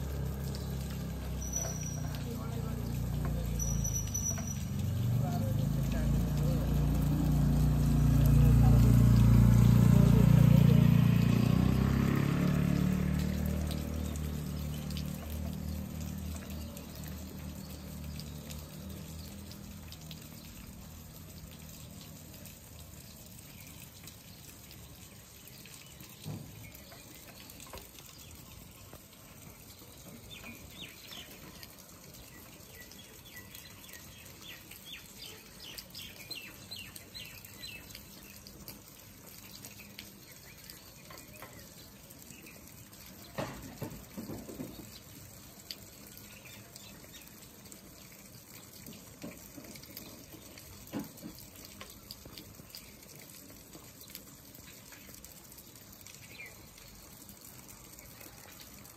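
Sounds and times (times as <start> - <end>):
small birds chirping: 0.0 - 58.9.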